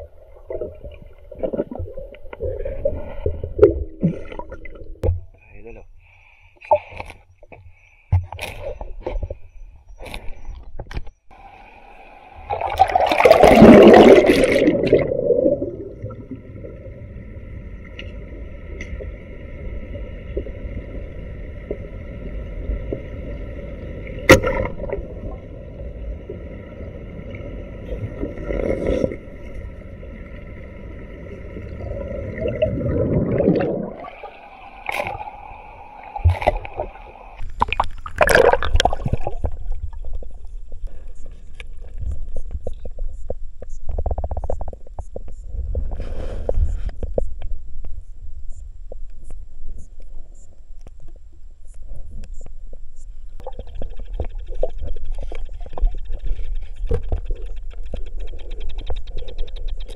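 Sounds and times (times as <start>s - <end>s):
muffled underwater churning: 0.0s - 5.5s, 11.2s - 50.4s, 51.8s - 59.9s
faint steady whine: 5.0s - 59.9s
water splashing: 12.4s - 16.9s, 31.2s - 40.3s.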